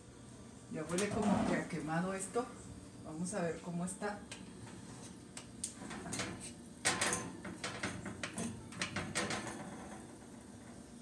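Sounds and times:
cake pan scraping on oven rack: 1.0s - 1.8s.

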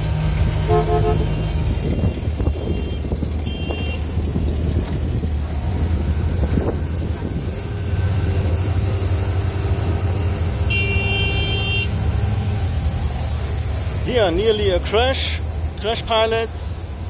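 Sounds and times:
boat engine running: 0.0s - 17.0s
wind on microphone: 1.5s - 9.0s.

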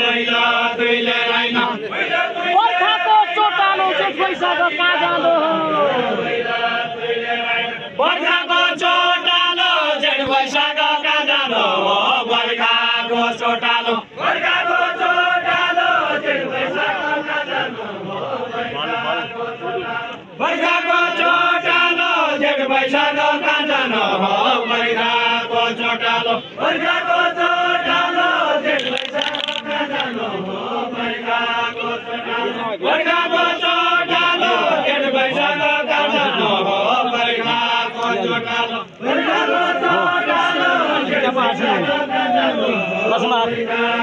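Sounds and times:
voices chanting a sung verse: 0.0s - 44.0s.

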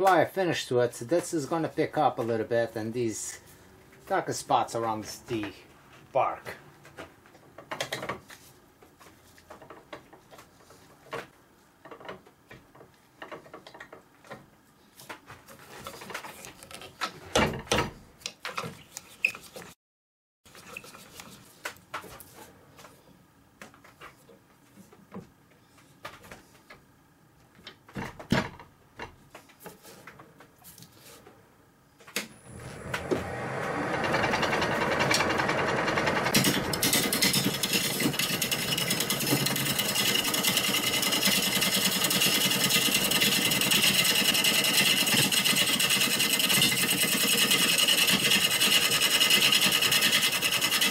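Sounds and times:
knocks and clicks: 32.2s - 39.6s
lathe high whine: 32.2s - 50.9s
turning tool cutting wood: 32.2s - 50.9s.

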